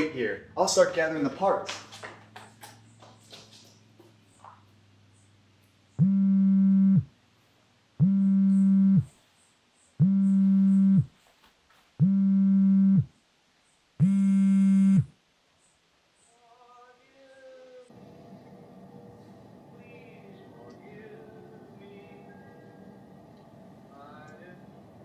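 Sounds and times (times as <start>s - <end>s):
mobile phone vibrating: 6.0s - 7.1s, 8.0s - 9.1s, 10.0s - 11.2s, 12.0s - 13.1s, 14.0s - 15.1s.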